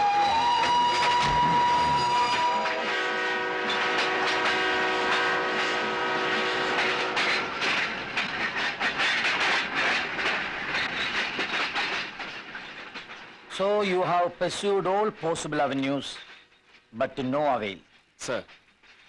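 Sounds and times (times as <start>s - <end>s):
train horn: 0.0s - 7.7s
hissing rush of passing train: 0.0s - 17.0s
train wheels clattering on rails: 0.0s - 19.0s.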